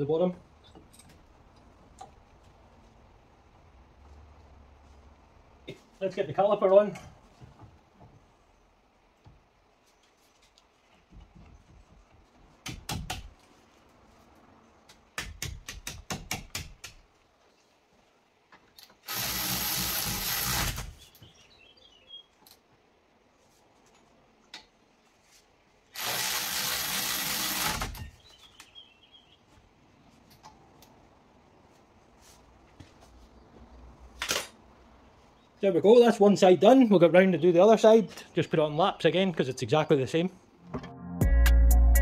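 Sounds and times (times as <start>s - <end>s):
power tool running: 19.0s - 21.0s, 25.9s - 28.0s.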